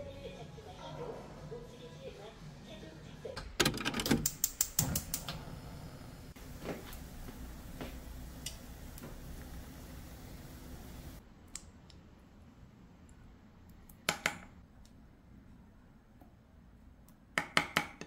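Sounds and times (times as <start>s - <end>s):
sharp clicks: 4.0s - 5.4s
gas burner hissing: 4.3s - 11.2s.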